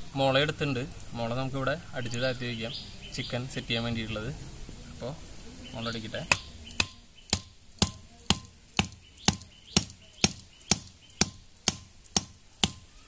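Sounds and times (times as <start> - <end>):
machete knocking on bamboo stake: 6.3 - 12.8.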